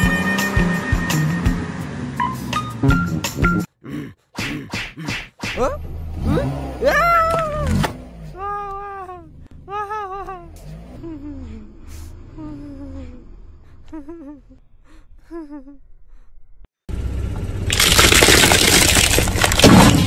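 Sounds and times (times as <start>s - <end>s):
tyre crushing candy shells: 17.7s - 20.0s.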